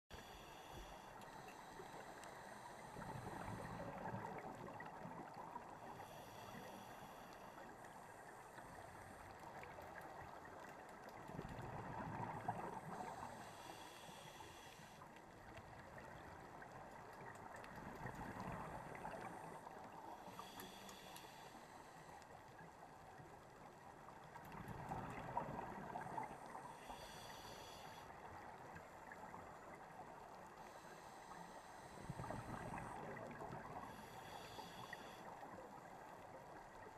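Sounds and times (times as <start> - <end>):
regulator hissing inhale: 0.1 - 4.2, 5.6 - 9.3, 12.8 - 15.1, 19.1 - 22.3, 26.6 - 28.2, 30.6 - 33.0, 33.6 - 35.6
exhaled bubbles gurgling: 2.9 - 5.8, 11.2 - 13.5, 24.4 - 26.8, 31.9 - 34.1.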